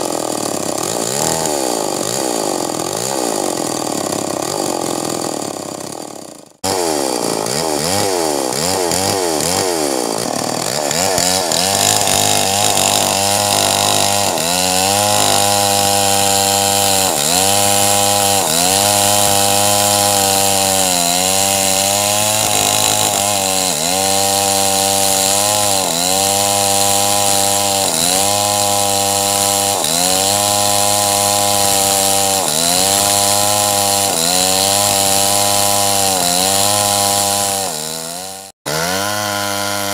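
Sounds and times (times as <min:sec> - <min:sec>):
chainsaw cutting log: 0:00.0 - 0:39.9.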